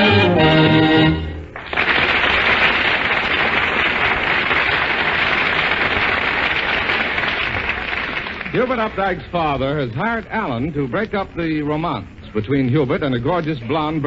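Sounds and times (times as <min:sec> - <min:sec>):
audience applauding: 0:01.2 - 0:09.2.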